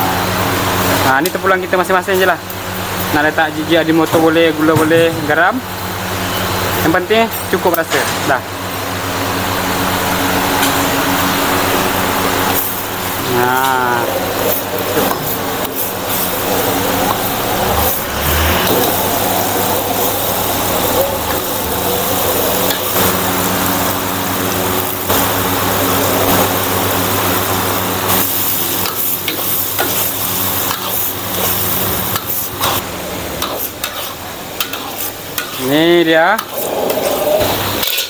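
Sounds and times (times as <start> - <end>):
low mechanical hum: 0.0 - 38.0
sauce sizzling in a wok: 8.9 - 38.0
metal ladle scraping wok: 33.4 - 35.7, 36.4 - 38.0.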